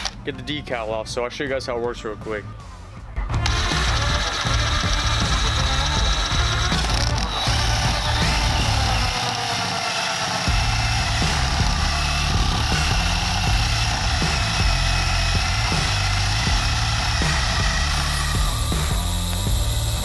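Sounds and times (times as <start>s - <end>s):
cordless drill running: 3.3s - 20.0s.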